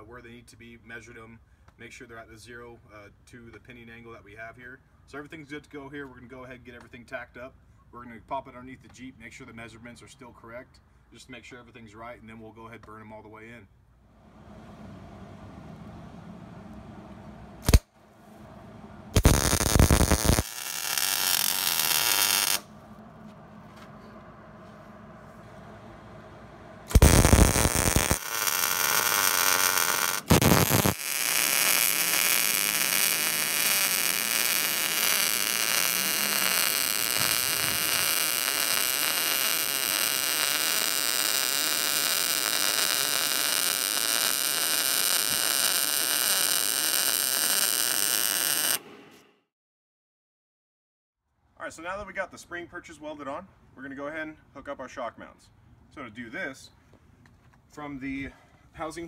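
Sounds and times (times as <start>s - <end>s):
arc welder welding steel: 17.6s - 17.9s, 19.1s - 22.7s, 26.9s - 48.8s.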